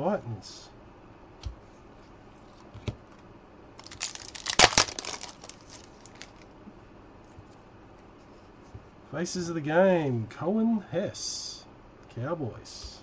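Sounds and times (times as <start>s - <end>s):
wrapper tearing and crinkling: 3.8s - 6.4s.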